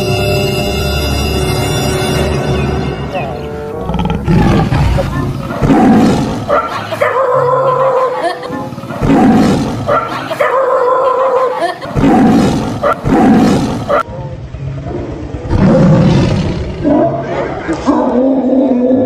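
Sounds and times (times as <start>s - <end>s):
lion roaring: 3.7s - 8.0s, 8.7s - 11.2s, 11.9s - 19.0s
dog crying: 6.4s - 8.8s, 9.8s - 11.8s.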